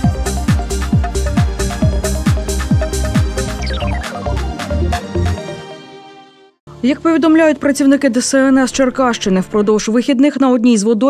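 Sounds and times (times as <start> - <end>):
kick drum beat: 0.0 - 3.5
synth chords: 0.0 - 6.8.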